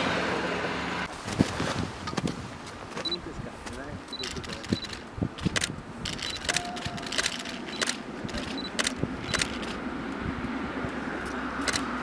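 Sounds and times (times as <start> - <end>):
sharp irregular clicks: 4.2 - 9.8.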